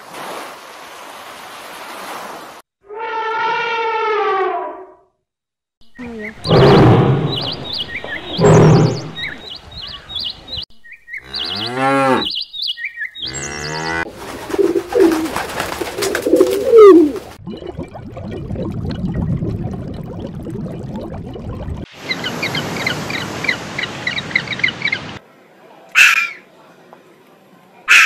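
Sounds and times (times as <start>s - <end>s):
high bird-like chirps: 5.8s - 11.6s, 12.2s - 13.8s
pigeons cooing: 13.3s - 17.4s.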